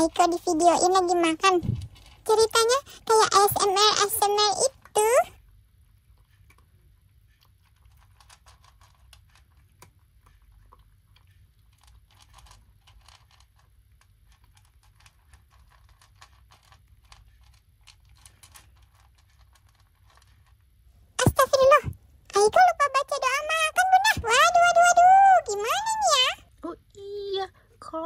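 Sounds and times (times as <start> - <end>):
cat crunching dry food: 0.1 - 3.5, 4.3 - 20.8.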